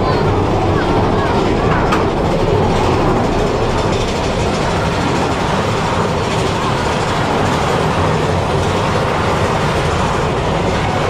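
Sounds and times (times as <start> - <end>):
roller coaster cars rattling: 0.0 - 11.0.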